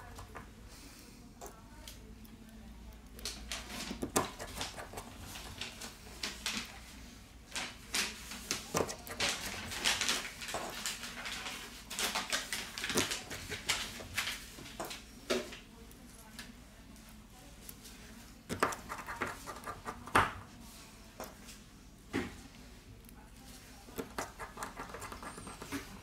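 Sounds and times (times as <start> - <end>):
scratchy scraping: 24.0 - 26.0.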